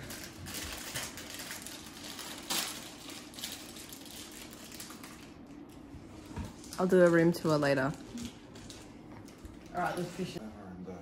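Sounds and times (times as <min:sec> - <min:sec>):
packet rustling: 0:00.0 - 0:05.9.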